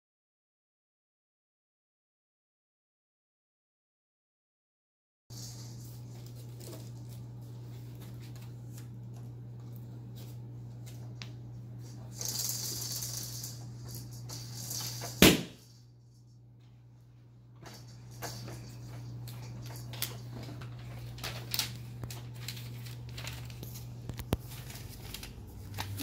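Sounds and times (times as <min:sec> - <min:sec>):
cardboard and plastic wrap rustling: 0:05.3 - 0:11.1, 0:18.6 - 0:26.0
steady low hum: 0:05.3 - 0:26.0.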